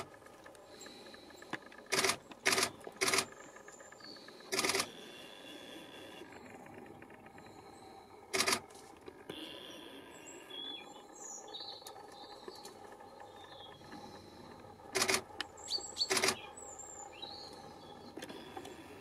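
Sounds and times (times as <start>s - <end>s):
small birds chirping: 9.4s - 14.4s, 15.4s - 19.0s.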